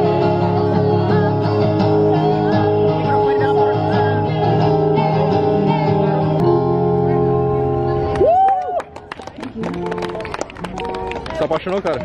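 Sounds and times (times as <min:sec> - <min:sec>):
woman singing: 0:00.0 - 0:06.4
acoustic guitar: 0:00.0 - 0:08.4.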